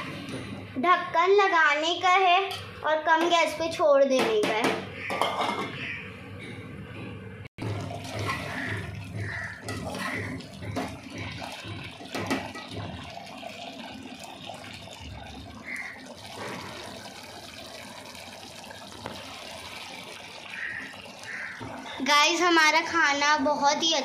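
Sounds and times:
gravy bubbling in a pot: 0:07.6 - 0:24.0.

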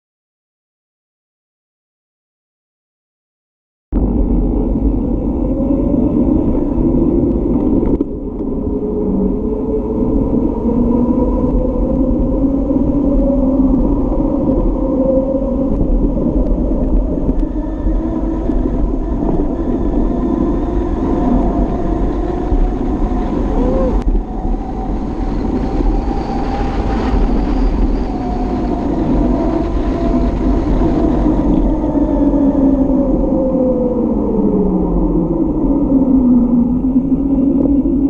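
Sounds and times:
wind rushing over microphone: 0:03.9 - 0:38.0
bicycle road noise on asphalt: 0:04.0 - 0:38.0
wavering hum: 0:04.0 - 0:38.0.

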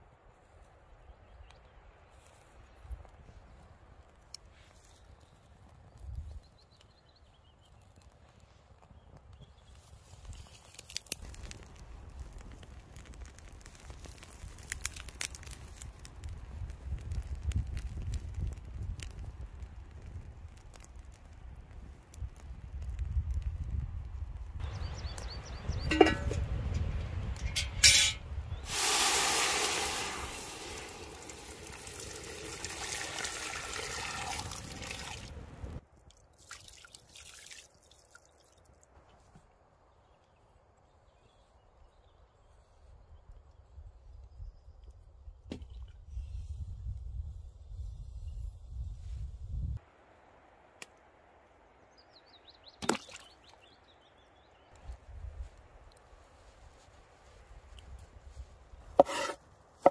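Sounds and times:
bird chirping: 0:24.6 - 0:26.4
pot knocking onto stones: 0:25.8 - 0:26.6, 0:59.0 - 0:59.9
metal handle clanking: 0:25.9 - 0:26.5
water pouring into a metal pot: 0:28.7 - 0:35.3
potato splashing into water: 0:52.8 - 0:53.6.

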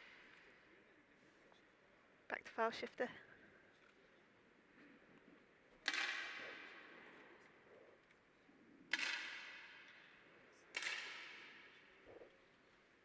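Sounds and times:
air rifle shots echoing: 0:05.8 - 0:07.3, 0:08.9 - 0:12.0.

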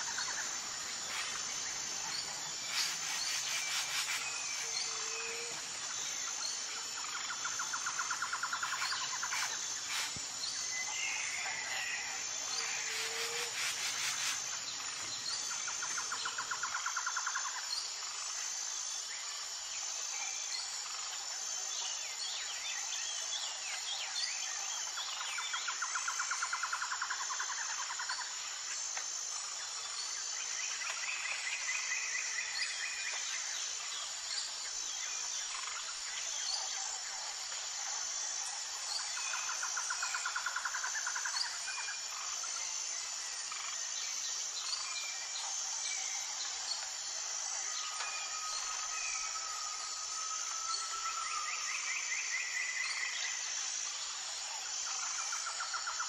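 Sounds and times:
high drone of insects: 0:00.0 - 0:56.0.

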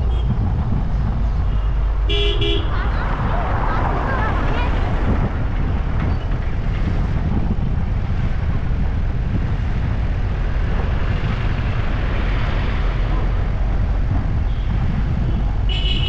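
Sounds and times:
road noise: 0:00.0 - 0:16.0
vehicle engine rumble: 0:00.0 - 0:16.0
wind on microphone: 0:00.0 - 0:16.0.

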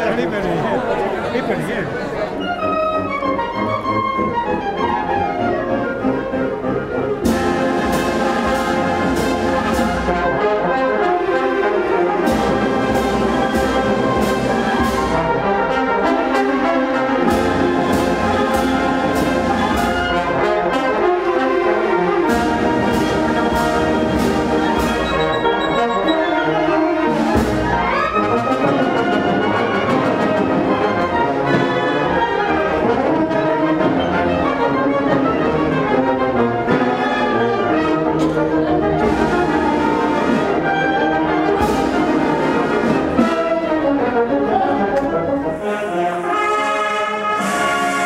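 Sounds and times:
brass band playing: 0:00.0 - 0:48.0
percussion strikes: 0:22.3 - 0:29.2.

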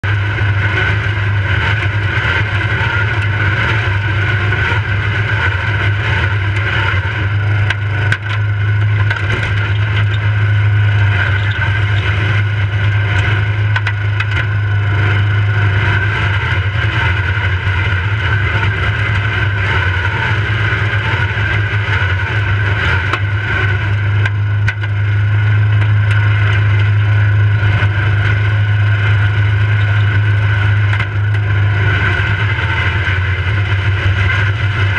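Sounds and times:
riding lawnmower engine: 0:00.0 - 0:34.9
mower body rattling: 0:05.3 - 0:15.3, 0:24.1 - 0:34.6.

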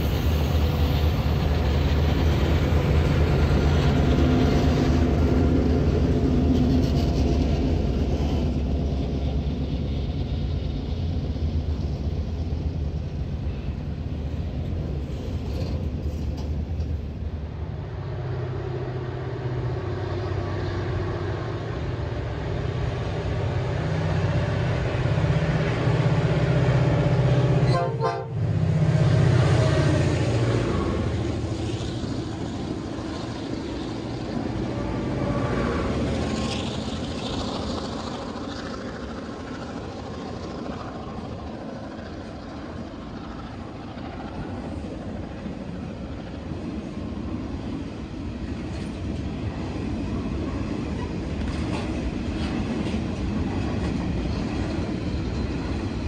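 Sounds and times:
locomotive engine rumble: 0:00.0 - 0:56.0
train horn: 0:27.7 - 0:28.5.

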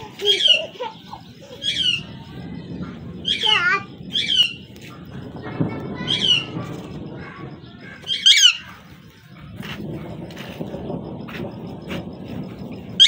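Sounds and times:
parakeet screeching: 0:07.9 - 0:08.8.

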